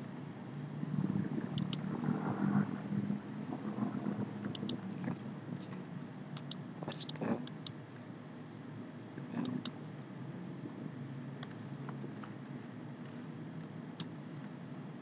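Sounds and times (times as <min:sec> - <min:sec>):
low room hum: 0:00.0 - 0:15.0
computer mouse clicking: 0:01.5 - 0:01.8, 0:04.4 - 0:04.9, 0:06.4 - 0:07.8, 0:09.4 - 0:09.8.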